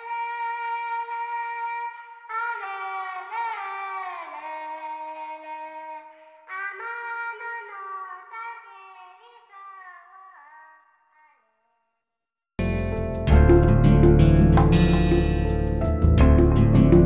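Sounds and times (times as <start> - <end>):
high sung voice: 0.0 - 11.6.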